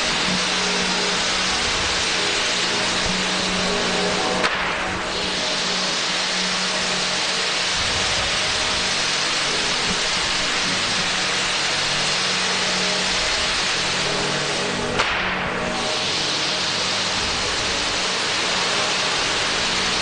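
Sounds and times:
firework fountains hissing crackle: 0.0s - 20.0s.

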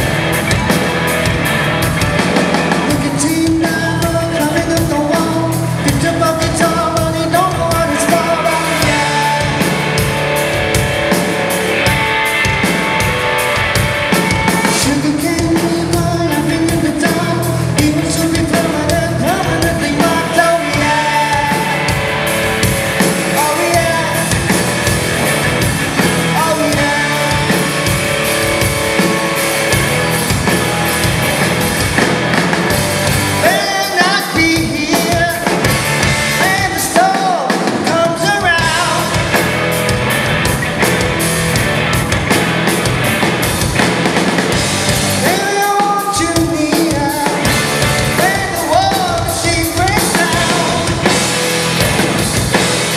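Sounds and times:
live rock band: 0.0s - 52.9s
male lead vocal singing: 2.7s - 9.9s, 14.5s - 22.0s, 23.3s - 24.6s, 26.2s - 27.8s, 33.4s - 39.3s, 45.2s - 51.2s.

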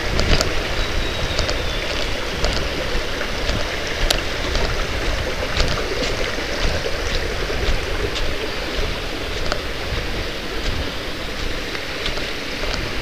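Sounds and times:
footsteps on dry leaves: 0.0s - 13.0s
stream rushing: 0.0s - 13.0s.

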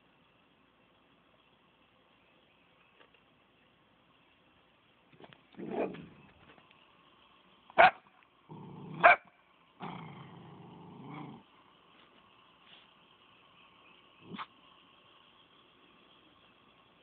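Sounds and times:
dog barking sharply: 7.8s - 8.0s, 9.0s - 9.3s
dog growling low: 8.5s - 9.0s, 9.8s - 11.5s.

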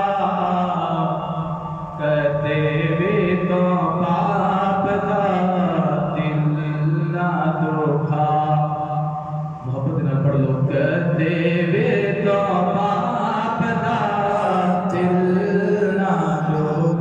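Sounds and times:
man chanting solo: 9.6s - 17.0s.

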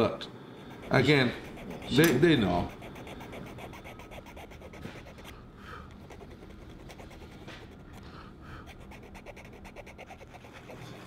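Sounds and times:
hand tool scraping beak: 0.6s - 4.1s
soft close breathing: 5.2s - 6.0s, 7.8s - 8.9s.

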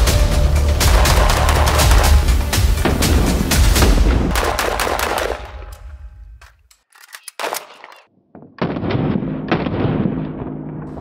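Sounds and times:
rapid rifle fire: 0.8s - 2.6s, 3.7s - 5.8s.

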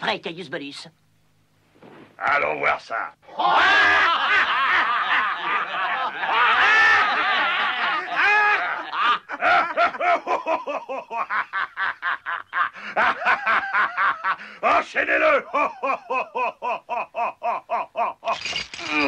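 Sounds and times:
cartoon voices laughing: 3.3s - 14.4s, 15.4s - 18.3s.

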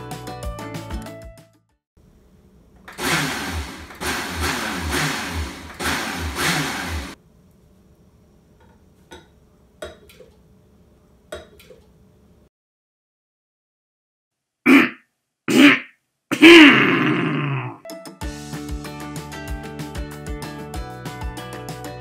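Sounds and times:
blender running: 2.9s - 7.2s.

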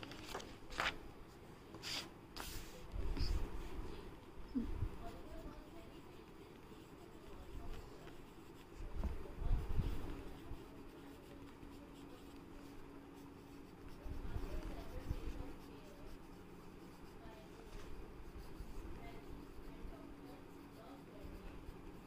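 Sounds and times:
pencil scratching on paper: 1.8s - 3.7s, 5.0s - 22.0s.

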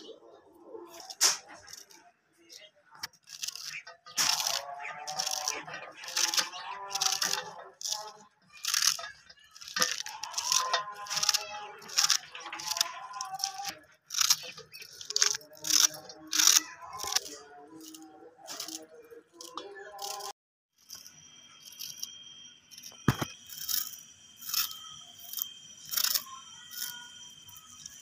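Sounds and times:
knife crunching through stems: 0.8s - 2.0s, 3.0s - 20.3s.

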